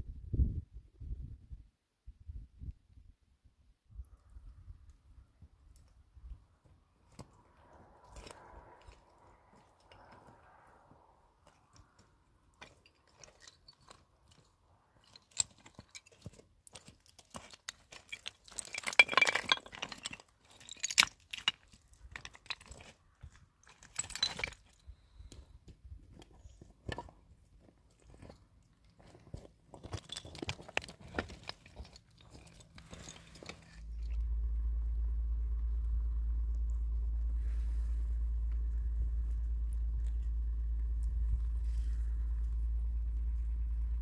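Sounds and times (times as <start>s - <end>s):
crunching and clicking handling: 27.9s - 34.1s.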